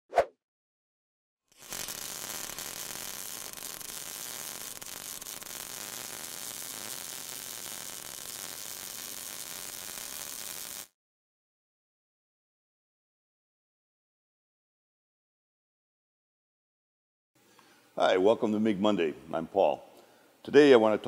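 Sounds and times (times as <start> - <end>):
welding arc crackling: 1.5 - 11.0.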